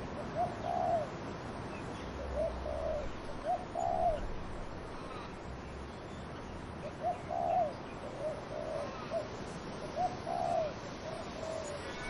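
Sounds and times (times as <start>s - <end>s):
wind in trees: 0.0s - 12.0s
dove cooing: 0.2s - 1.2s, 2.2s - 4.4s, 6.8s - 12.0s.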